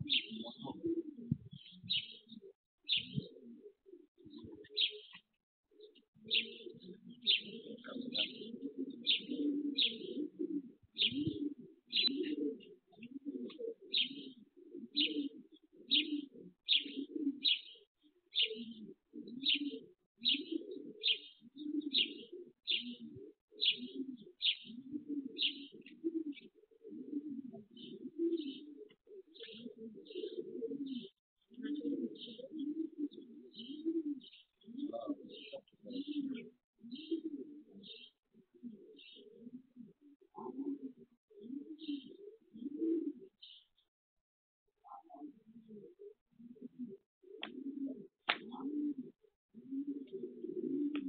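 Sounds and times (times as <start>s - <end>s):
small bird chirping: 0.0s - 0.8s, 1.4s - 2.3s, 2.9s - 3.3s, 4.3s - 5.3s, 11.0s - 12.3s, 16.7s - 18.6s, 24.4s - 24.8s
pigeons cooing: 0.0s - 43.8s, 44.8s - 51.0s.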